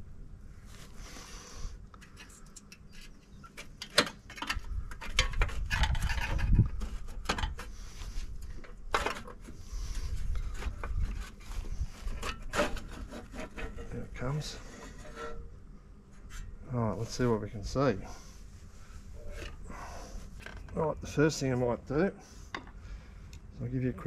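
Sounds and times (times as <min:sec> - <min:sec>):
screwdriver scraping sheet metal: 0:14.6 - 0:15.5.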